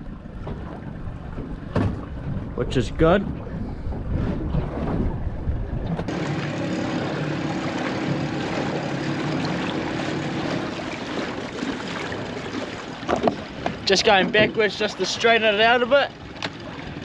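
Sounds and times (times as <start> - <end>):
wind rumble on microphone: 0.0 - 6.5, 12.0 - 15.0
small boat motor humming: 3.3 - 17.0.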